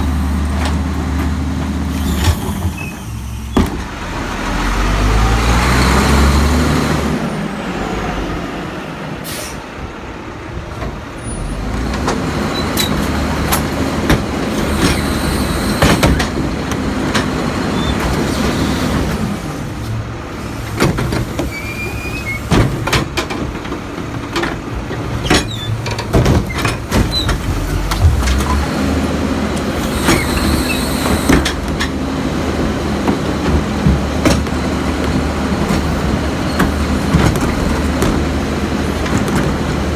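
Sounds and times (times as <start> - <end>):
garbage truck diesel engine: 0.0 - 39.9
metal carts knocking and clanking: 22.4 - 28.7, 30.0 - 39.9.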